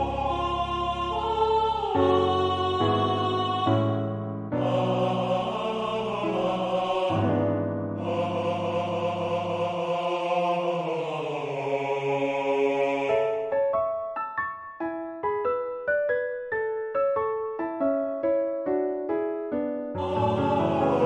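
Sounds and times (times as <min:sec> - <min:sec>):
piano accompaniment: 0:00.0 - 0:10.0, 0:13.1 - 0:21.0
tenor singing with vibrato: 0:00.0 - 0:13.5, 0:20.0 - 0:21.0.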